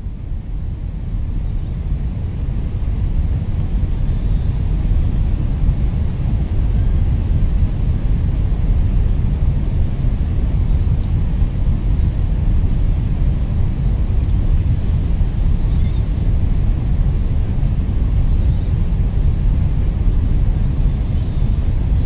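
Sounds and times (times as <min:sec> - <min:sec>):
steady low rumbling: 0:00.0 - 0:22.0.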